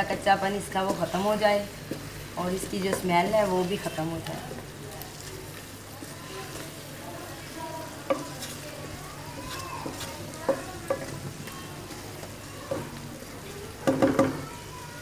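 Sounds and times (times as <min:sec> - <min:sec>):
wooden spatula knocking pan: 0:00.0 - 0:04.4, 0:07.8 - 0:13.0, 0:13.8 - 0:14.4
food sizzling in oil: 0:00.0 - 0:15.0.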